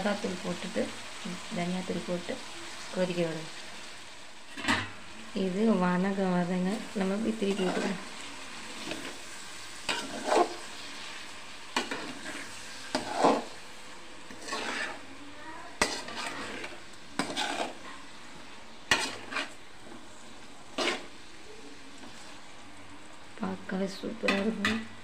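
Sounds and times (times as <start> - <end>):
low sizzle of frying: 0.0 - 25.0
metal spatula scraping pan: 6.5 - 22.5.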